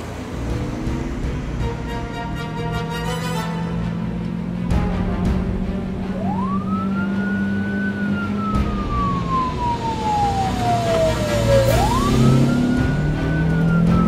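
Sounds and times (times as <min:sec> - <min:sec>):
police siren wailing: 0:05.9 - 0:14.0.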